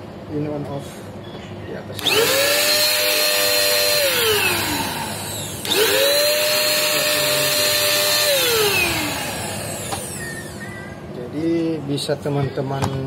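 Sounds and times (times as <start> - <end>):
paint spray gun motor whining: 2.0 - 10.7.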